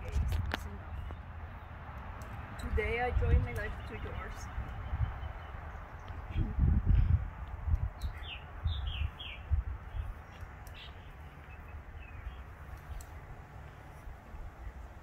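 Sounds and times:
small bird chirping: 0:07.8 - 0:13.3.

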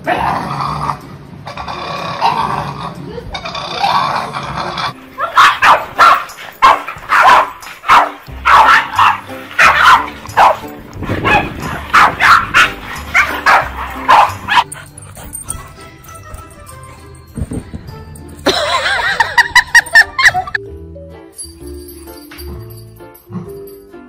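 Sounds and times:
background music: 0:00.0 - 0:24.0
dogs barking sharply: 0:05.2 - 0:14.8.

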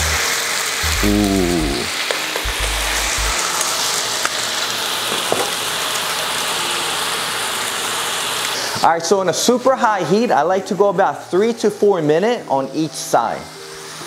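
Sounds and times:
background music with bass: 0:00.0 - 0:01.9, 0:02.5 - 0:03.4
meat sizzling in a pan: 0:00.0 - 0:11.8, 0:12.6 - 0:14.0.

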